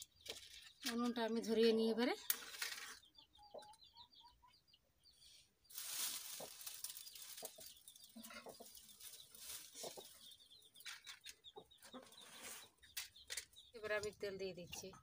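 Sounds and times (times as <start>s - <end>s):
dry leaves crackling: 5.7s - 11.1s
hens clucking: 6.2s - 14.1s.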